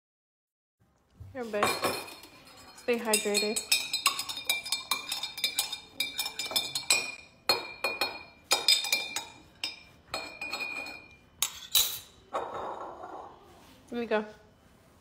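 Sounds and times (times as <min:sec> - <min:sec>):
spoon clinking in glass jar: 0:01.6 - 0:12.7.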